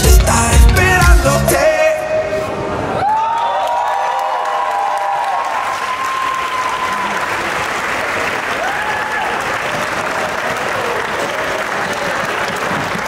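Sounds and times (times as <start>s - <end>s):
high held cheers: 2.9s - 7.7s, 8.4s - 13.0s
crowd applauding: 3.0s - 13.0s.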